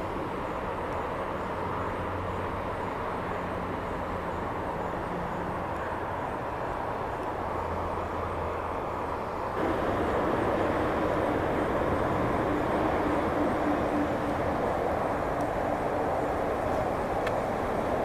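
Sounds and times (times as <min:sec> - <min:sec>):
outdoor background rumble: 0:00.0 - 0:18.0.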